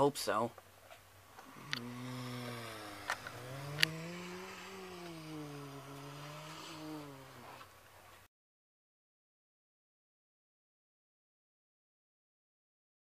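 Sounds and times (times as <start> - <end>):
car engine revving: 1.4 - 7.8
sharp clicks: 3.0 - 4.0.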